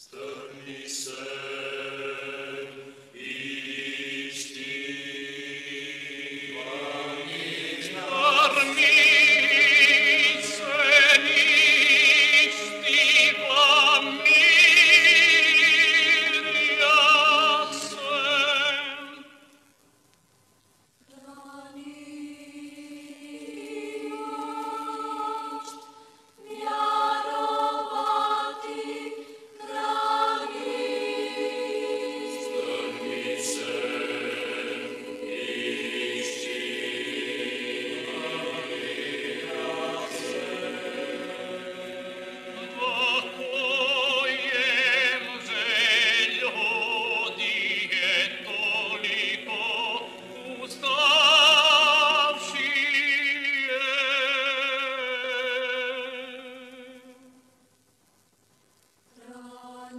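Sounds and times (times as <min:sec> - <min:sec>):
choir singing chant: 0:00.0 - 0:19.3, 0:21.1 - 0:57.1, 0:59.2 - 0:59.9.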